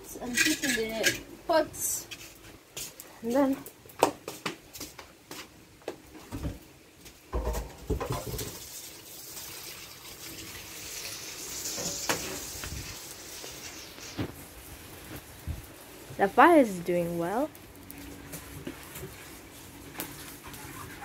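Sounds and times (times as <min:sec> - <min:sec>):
knocks and thumps in sink: 0:07.3 - 0:08.6
tap water running: 0:07.3 - 0:14.3.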